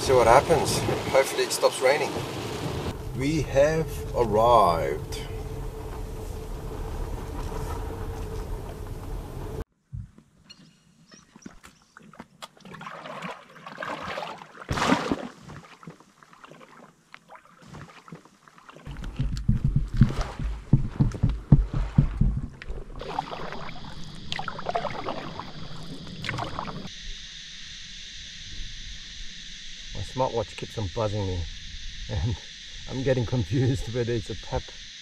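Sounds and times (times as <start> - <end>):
paddle splashing water: 0.0 - 9.6, 11.3 - 26.9
heavy low rumbling: 2.1 - 9.7
high insect buzz: 23.0 - 35.0.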